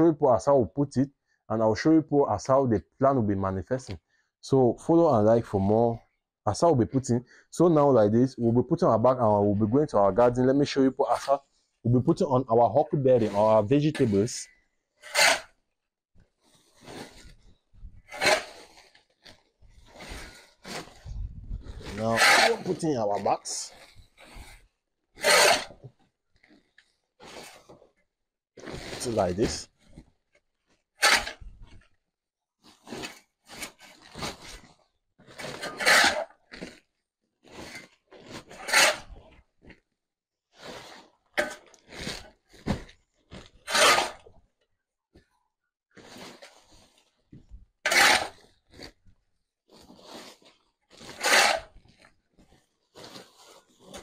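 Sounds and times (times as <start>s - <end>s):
shovel scraping concrete floor: 13.1s - 15.6s, 16.7s - 25.9s, 27.2s - 27.8s, 28.6s - 30.1s, 31.0s - 31.8s, 32.8s - 36.9s, 37.5s - 39.4s, 40.6s - 44.4s, 45.9s - 49.0s, 49.8s - 52.2s, 53.0s - 54.0s.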